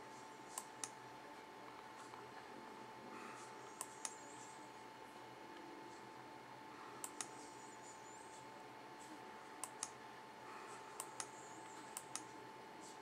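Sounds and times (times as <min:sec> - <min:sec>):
faint steady hum: 0:00.0 - 0:13.0
computer mouse clicking: 0:03.5 - 0:04.5, 0:07.0 - 0:07.5, 0:09.6 - 0:10.0, 0:10.8 - 0:12.4.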